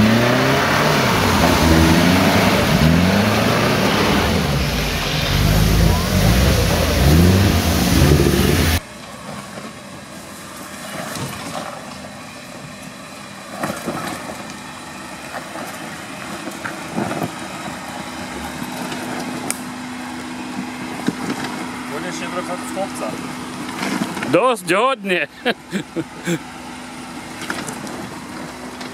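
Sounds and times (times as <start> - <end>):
engine revving hard: 0.0 - 8.8
steady hum: 0.4 - 8.8
engine running quietly: 25.2 - 28.9.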